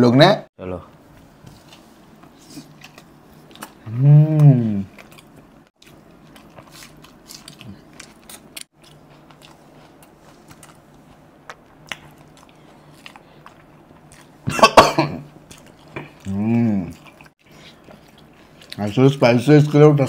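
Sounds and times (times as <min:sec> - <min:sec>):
faint steady hum: 0:00.0 - 0:20.0
wet chewing and lip-smacking: 0:01.6 - 0:03.8, 0:04.9 - 0:14.5, 0:15.3 - 0:19.9.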